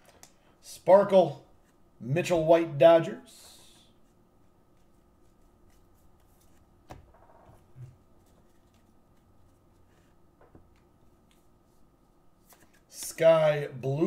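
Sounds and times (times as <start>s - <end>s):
cards flicking and sliding: 4.7s - 7.4s, 12.4s - 13.2s.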